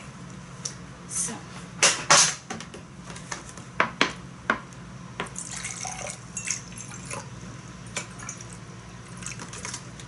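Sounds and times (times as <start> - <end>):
tea pouring into cup: 5.4 - 7.3.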